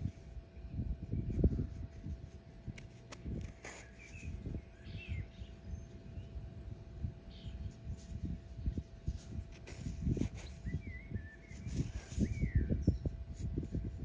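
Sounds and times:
faint steady hum: 0:00.0 - 0:14.0
low uneven rumbling on microphone: 0:00.0 - 0:14.0
small bird chirping: 0:03.4 - 0:08.8, 0:09.6 - 0:14.0.

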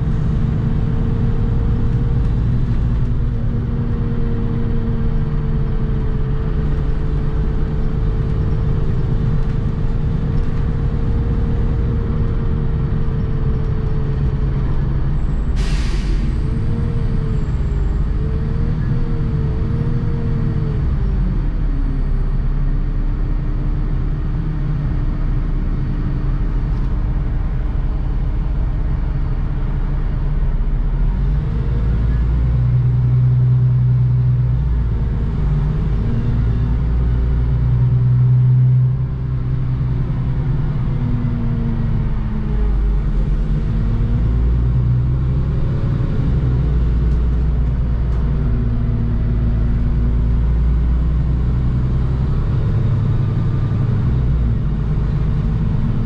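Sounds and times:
bus engine and road rumble: 0:00.0 - 0:56.0.

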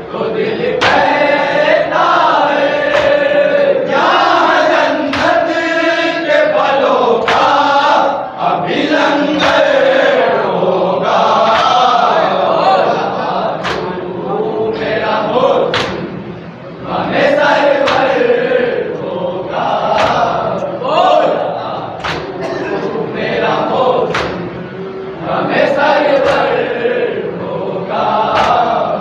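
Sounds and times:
men chanting: 0:00.0 - 0:29.0
chest-beating slaps: 0:02.9 - 0:03.3, 0:05.1 - 0:05.4, 0:11.4 - 0:11.9, 0:13.6 - 0:14.0, 0:15.7 - 0:16.2, 0:17.8 - 0:18.2, 0:19.9 - 0:20.4, 0:22.0 - 0:22.6, 0:24.1 - 0:24.6, 0:26.2 - 0:26.6, 0:28.3 - 0:28.8.

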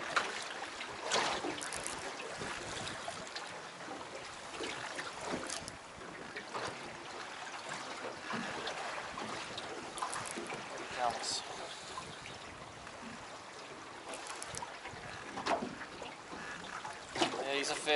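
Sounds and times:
water lapping against boat hull: 0:00.0 - 0:17.9
water splashes: 0:00.0 - 0:17.9
wind noise: 0:01.7 - 0:03.3.

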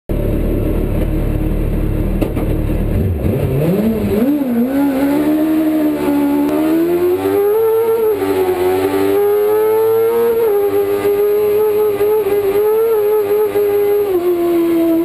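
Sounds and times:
motorcycle engine idling and revving: 0:00.1 - 0:15.0.

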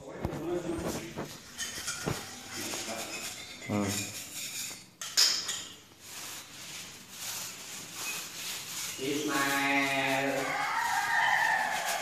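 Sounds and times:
metal scraper scratching on tiles: 0:08.0 - 0:12.0.

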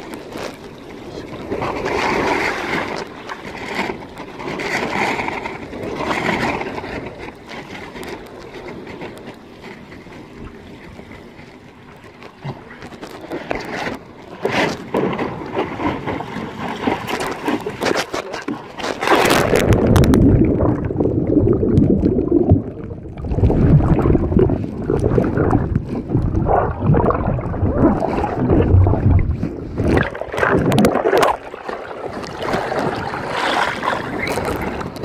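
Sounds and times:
water rushing over board: 0:00.0 - 0:35.0
wind rushing: 0:19.2 - 0:31.6.

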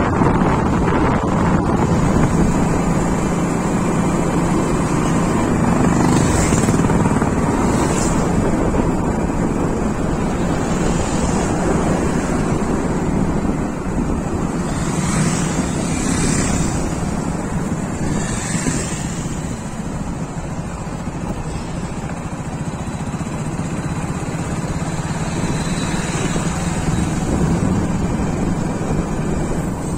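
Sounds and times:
engine hum: 0:00.0 - 0:29.9
road noise: 0:00.0 - 0:29.9
wind rushing over microphone: 0:00.0 - 0:29.9.

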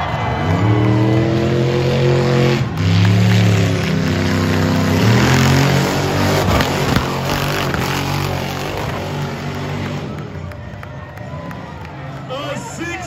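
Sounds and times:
engine revving hard: 0:00.1 - 0:10.3.

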